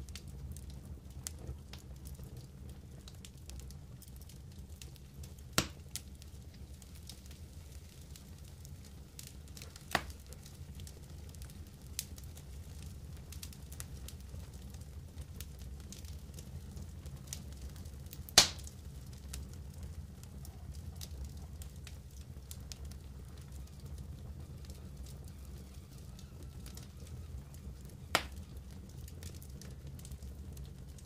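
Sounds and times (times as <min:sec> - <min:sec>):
campfire embers crackling: 0:00.0 - 0:31.0
sharp wood crack: 0:18.4 - 0:18.6.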